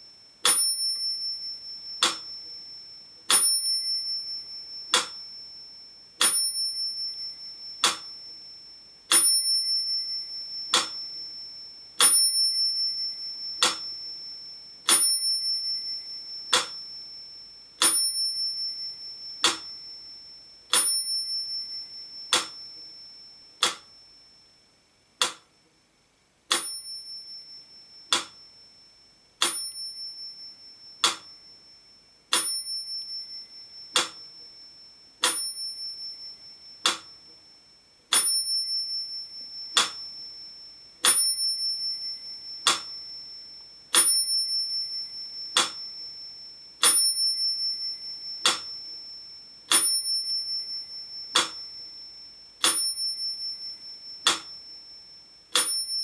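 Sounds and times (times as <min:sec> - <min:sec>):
metronome bell ringing: 0:00.0 - 0:24.6, 0:26.5 - 0:56.0
metronome ticking: 0:01.8 - 0:05.3, 0:06.2 - 0:08.4, 0:09.1 - 0:11.4, 0:12.0 - 0:14.2, 0:14.9 - 0:17.0, 0:17.8 - 0:20.0, 0:20.7 - 0:23.0, 0:23.6 - 0:24.0, 0:25.2 - 0:25.6, 0:26.5 - 0:28.5, 0:29.4 - 0:31.5, 0:32.3 - 0:37.4, 0:38.1 - 0:49.1, 0:49.7 - 0:52.0, 0:52.6 - 0:54.8, 0:55.5 - 0:56.0.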